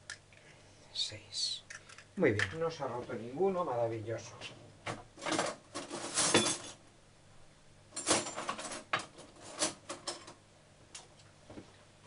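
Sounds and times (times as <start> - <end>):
kitchenware scraping: 5.2 - 6.8.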